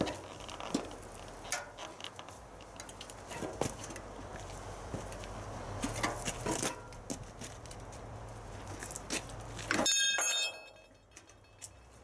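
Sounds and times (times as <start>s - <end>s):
metal clanks and knocks: 5.8s - 7.1s
sharp ringing steel clang: 9.8s - 11.0s.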